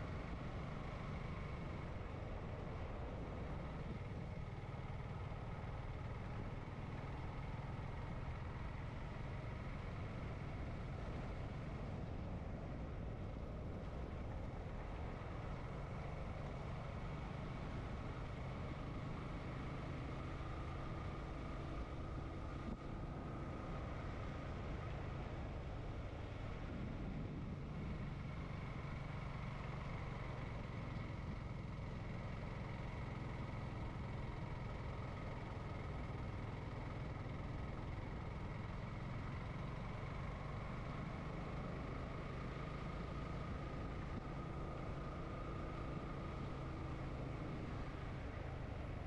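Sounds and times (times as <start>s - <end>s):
motorcycle engine cruising: 0.0s - 49.0s
wind and road noise: 0.0s - 49.0s.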